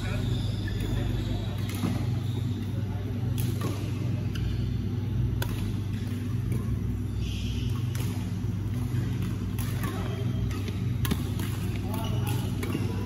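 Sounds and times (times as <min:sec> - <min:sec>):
low hum of indoor hall: 0:00.0 - 0:13.0
rackets striking shuttlecocks: 0:03.1 - 0:13.0.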